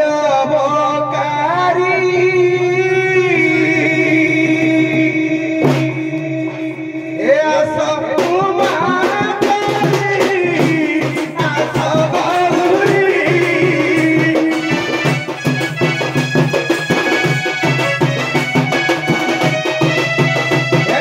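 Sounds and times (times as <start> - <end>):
man singing: 0.0 - 21.0
hand drum strokes: 8.2 - 21.0.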